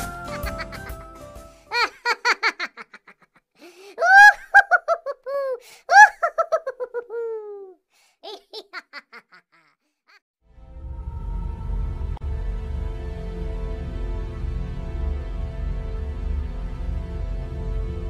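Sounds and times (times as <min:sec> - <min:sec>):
high-pitched laughter: 0:00.3 - 0:01.0, 0:01.7 - 0:03.4, 0:04.0 - 0:10.2.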